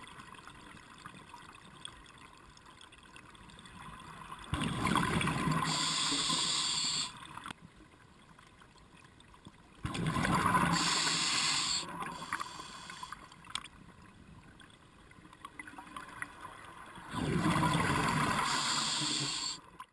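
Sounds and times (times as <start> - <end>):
exhaled bubbles underwater: 4.5 - 7.3, 9.9 - 12.8, 17.0 - 19.6.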